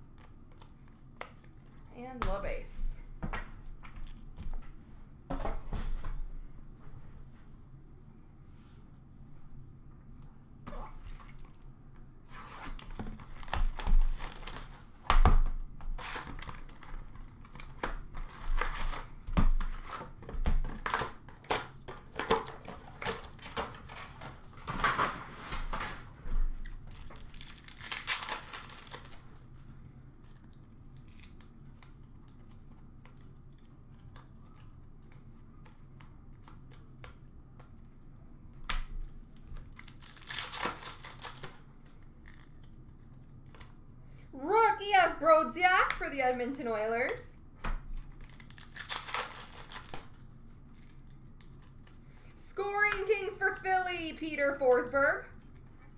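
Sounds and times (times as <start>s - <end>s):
cardboard and foil ripping: 12.5s - 15.0s, 26.8s - 29.5s, 30.2s - 31.6s, 39.6s - 42.7s, 48.0s - 51.8s.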